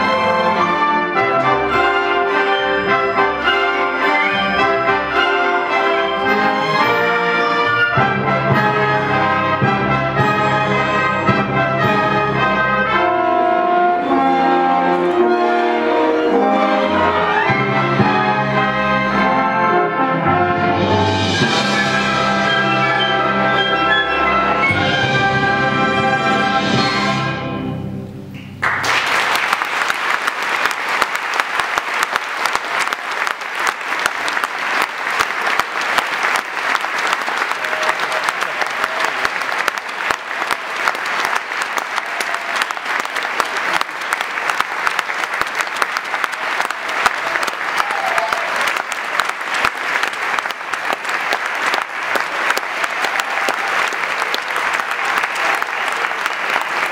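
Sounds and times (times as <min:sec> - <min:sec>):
audience applause: 0:28.6 - 0:56.9.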